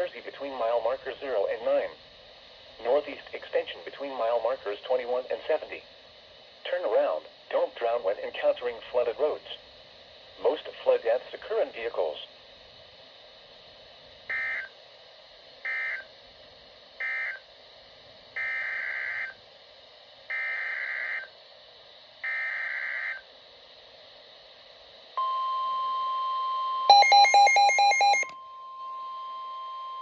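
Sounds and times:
radio speaker hiss: 0.0 - 25.2
steady warning alarm tone: 14.3 - 14.7, 15.6 - 16.1, 17.0 - 17.5, 18.4 - 19.4, 20.3 - 21.3, 22.2 - 23.3, 25.2 - 30.0
data bursts: 26.9 - 28.3
rapidly pulsing alert beep: 26.9 - 28.3.

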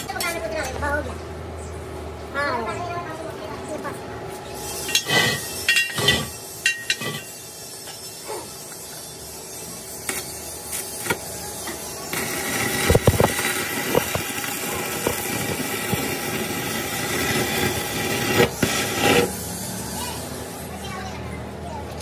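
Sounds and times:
welding arc crackling hiss: 4.5 - 20.9
welding pops: 10.0 - 19.4.

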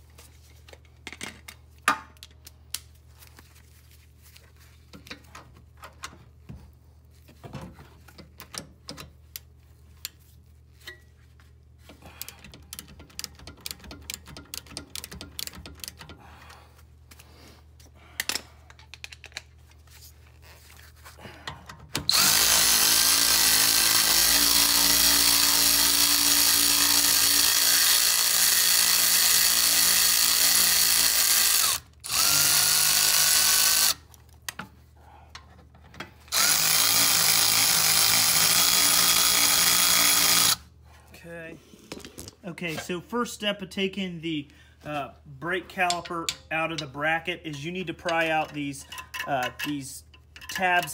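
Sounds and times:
hand ratchet clicking: 12.2 - 16.2, 22.1 - 34.0
power tool whine: 22.1 - 34.0, 36.3 - 40.6.

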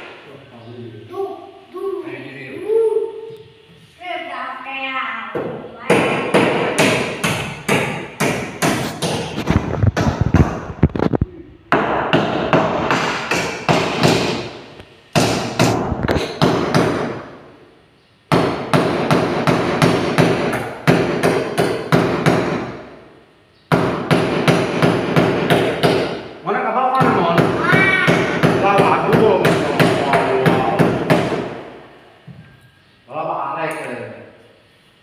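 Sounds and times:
hammer blows on ceiling: 5.5 - 10.9, 11.7 - 17.4, 18.3 - 23.0, 23.7 - 26.3, 26.9 - 32.5.

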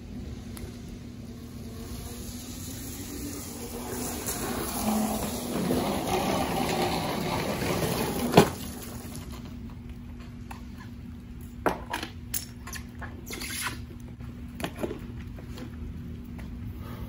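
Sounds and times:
tyres hissing on wet pavement: 0.0 - 9.3
low steady electric hum: 0.0 - 17.0.

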